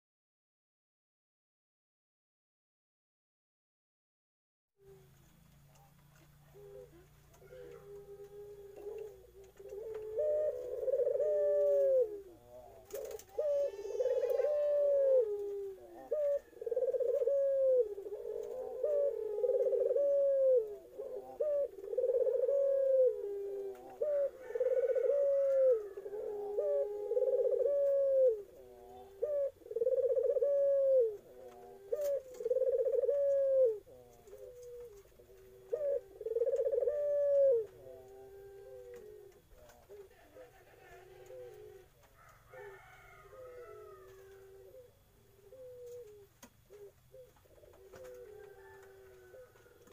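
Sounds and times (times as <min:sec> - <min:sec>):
dove cooing: 0:04.8 - 0:49.9.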